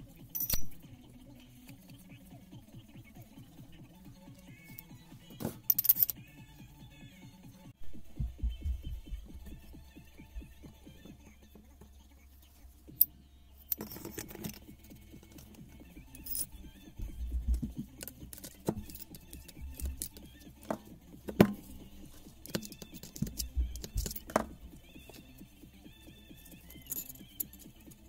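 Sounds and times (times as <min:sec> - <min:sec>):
steel parts clinking and knocking: 0:00.4 - 0:00.9, 0:04.4 - 0:06.3, 0:12.9 - 0:25.4, 0:26.0 - 0:28.0.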